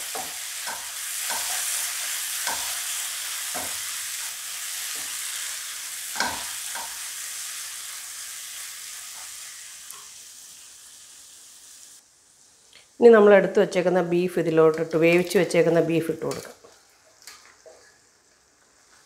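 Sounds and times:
masala sizzling in a wok: 0.0s - 19.0s
wooden spatula scraping: 16.2s - 19.0s.

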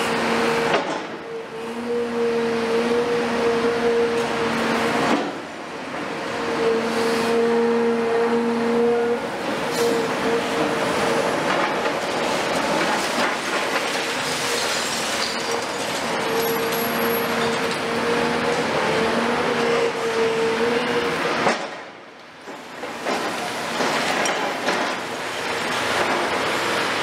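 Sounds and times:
excavator engine and hydraulics whine: 0.0s - 27.0s.

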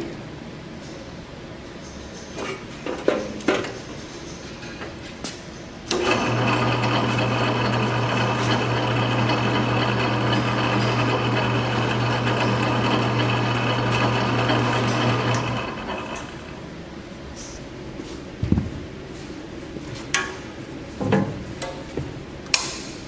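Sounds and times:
band saw motor hum and blade whir: 5.9s - 16.7s.

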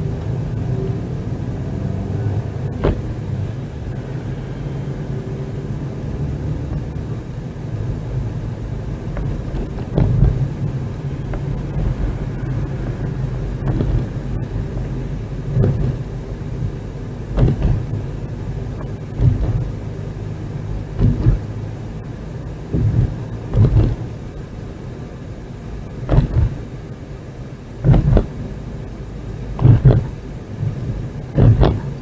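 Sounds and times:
engine and road hum: 0.0s - 32.0s
short low thump: 2.7s - 3.2s, 9.2s - 10.6s, 13.6s - 14.4s, 17.3s - 18.0s, 19.1s - 19.8s, 20.9s - 21.5s, 22.7s - 24.0s, 26.0s - 26.6s, 27.8s - 28.4s, 29.6s - 32.0s.

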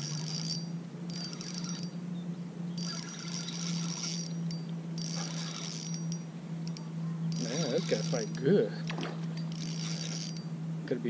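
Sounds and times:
fishing reel whirring: 0.0s - 2.0s, 2.7s - 10.6s
steady low hum: 0.0s - 11.0s.

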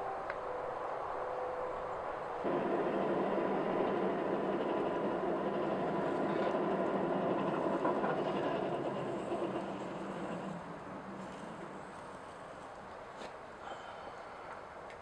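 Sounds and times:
forge fire roaring: 2.2s - 12.7s.

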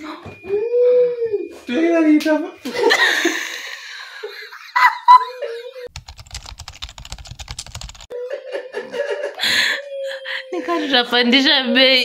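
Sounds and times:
child laughing: 4.6s - 5.9s
typing on laptop keyboard: 5.9s - 8.1s.

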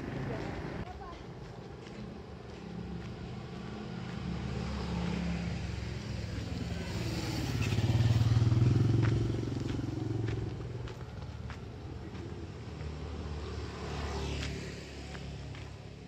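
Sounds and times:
motorcycle engine passing: 3.9s - 15.3s.

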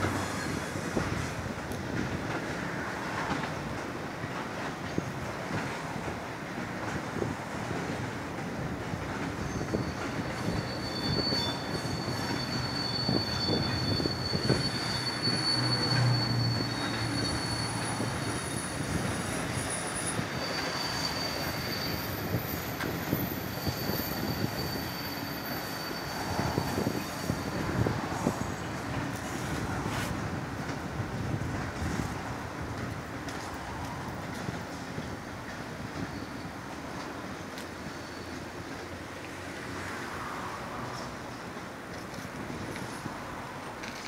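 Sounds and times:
high wheel squeal: 0.0s - 1.5s, 9.3s - 30.4s, 34.8s - 41.2s
rail joint clicks: 0.0s - 44.0s
train wheels rumbling over joints: 0.0s - 44.0s.

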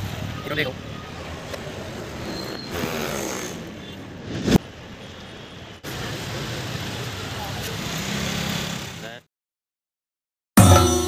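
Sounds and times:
street background noise: 0.0s - 9.3s.

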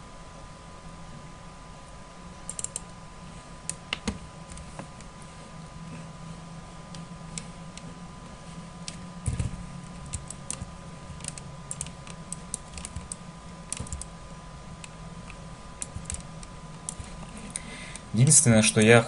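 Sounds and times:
steady low hum: 0.0s - 19.0s
mouse and keyboard clicks: 2.5s - 2.9s, 8.8s - 14.1s, 14.8s - 17.3s.

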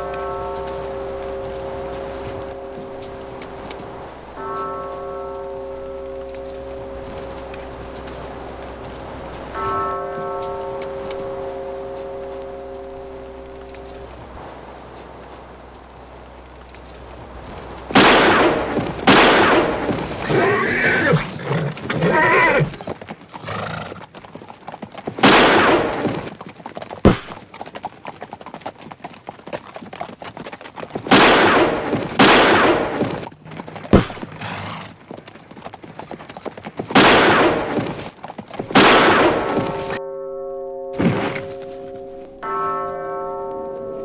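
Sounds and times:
bell-like music tones: 0.0s - 20.3s, 39.3s - 44.0s
revolver gunshots echoing: 18.0s - 19.9s, 31.1s - 33.0s, 34.0s - 34.2s, 38.8s - 40.0s
horse whinnying: 20.2s - 24.1s, 32.5s - 35.0s.

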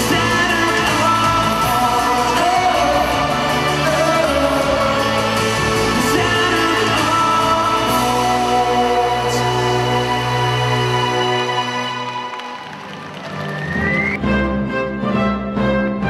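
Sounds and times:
man singing a pop ballad: 0.0s - 11.2s
band backing music: 0.0s - 16.0s.

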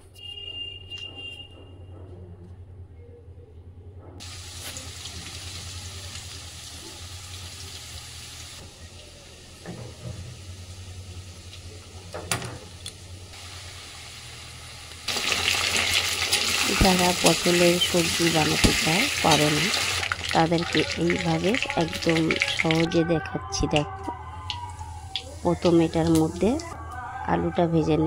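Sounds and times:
potatoes sizzling in hot oil: 4.2s - 8.6s, 13.4s - 22.9s.

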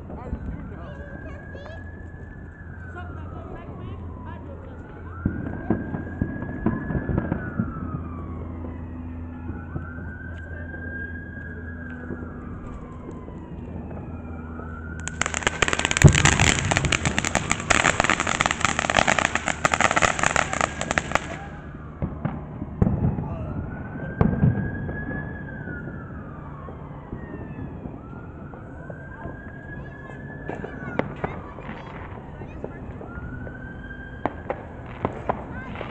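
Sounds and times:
siren wailing: 0.0s - 35.9s
firework spraying and crackling: 15.0s - 23.1s, 34.2s - 35.9s.

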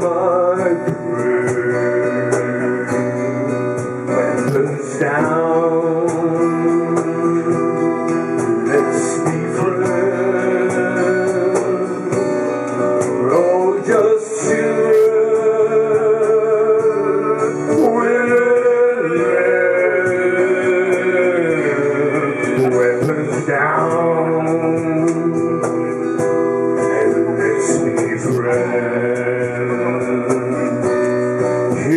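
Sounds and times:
person singing long notes: 0.0s - 12.2s, 13.2s - 25.7s
strummed acoustic guitar: 0.0s - 31.9s
upright bass: 0.0s - 31.9s.

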